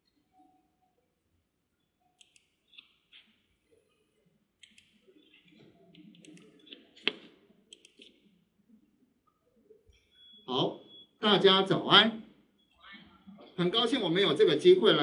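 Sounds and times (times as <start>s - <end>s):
computer mouse clicking: 2.2s - 3.0s, 4.6s - 5.0s, 5.9s - 8.2s.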